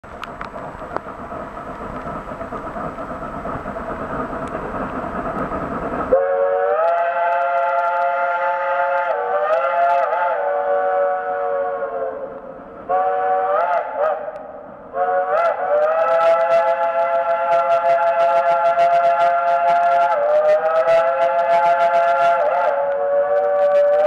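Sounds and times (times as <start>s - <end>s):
steam locomotive rumble: 0.0s - 24.0s
steam chime whistle: 6.1s - 12.3s, 15.0s - 24.0s.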